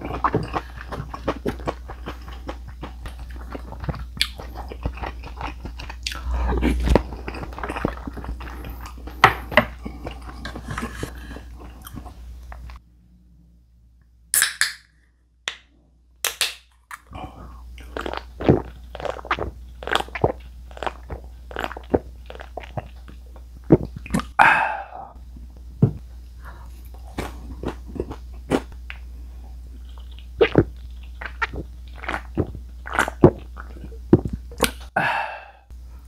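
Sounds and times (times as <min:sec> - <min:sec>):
chewing with wet mouth clicks: 0:00.0 - 0:06.2, 0:29.8 - 0:34.9
breathy exhale: 0:24.4 - 0:25.2, 0:35.0 - 0:35.7.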